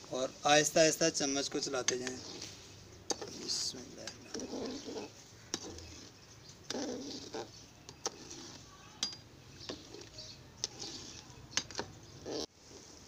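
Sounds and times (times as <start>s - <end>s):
metal ladle scraping a pan: 1.8s - 11.8s.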